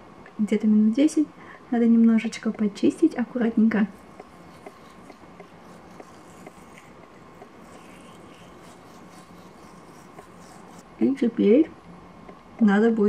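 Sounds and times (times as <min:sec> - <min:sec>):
soft ticks: 0:02.3 - 0:02.8, 0:03.9 - 0:10.8
toothbrush scrubbing teeth: 0:03.5 - 0:10.9.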